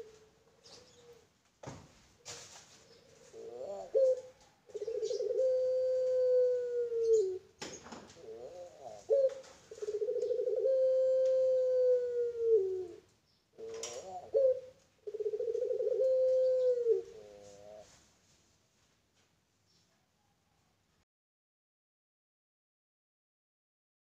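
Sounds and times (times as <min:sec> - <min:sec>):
dove cooing: 0:00.0 - 0:01.3, 0:02.2 - 0:18.0.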